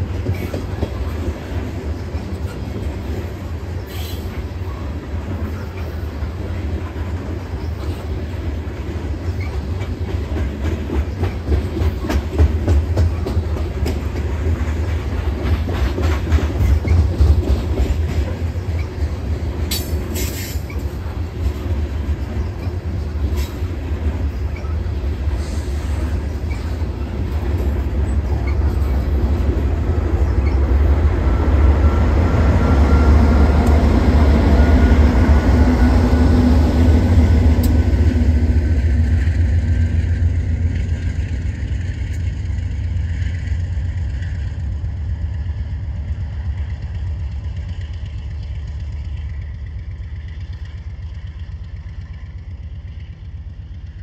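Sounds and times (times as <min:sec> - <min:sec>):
train rumbling over steel bridge: 0:00.0 - 0:54.0
train wheels clicking over rail: 0:07.2 - 0:31.0.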